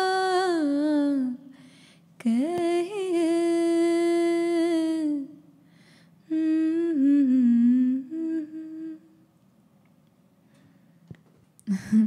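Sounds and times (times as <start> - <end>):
woman singing unaccompanied: 0.0 - 1.5, 2.2 - 5.4, 6.3 - 9.1.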